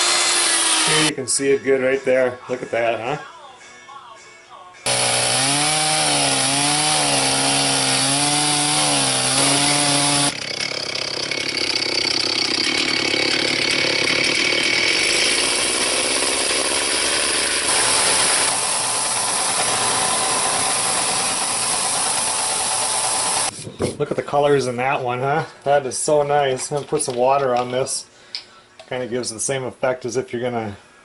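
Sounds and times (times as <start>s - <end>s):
chainsaw cutting log: 0.0s - 1.1s, 4.9s - 23.5s.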